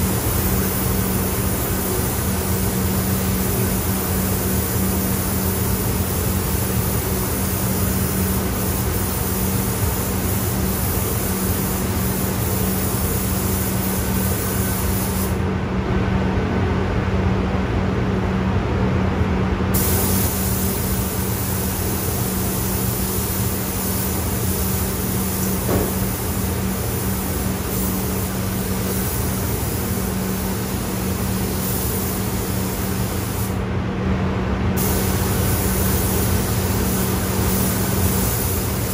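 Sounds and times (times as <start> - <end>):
paint spray gun hissing: 0.0 - 15.4, 19.8 - 33.6, 34.8 - 38.9
ventilation fans humming: 0.0 - 38.9.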